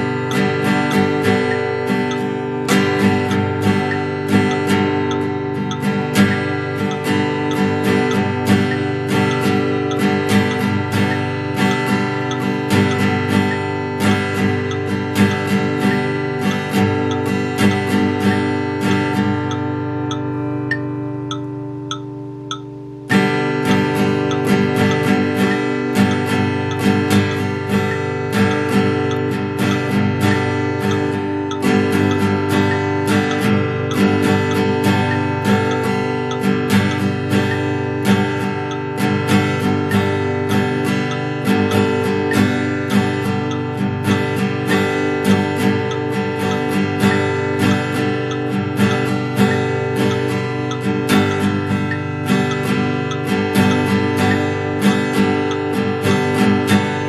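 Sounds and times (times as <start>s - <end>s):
acoustic guitar strumming: 0.0s - 57.0s.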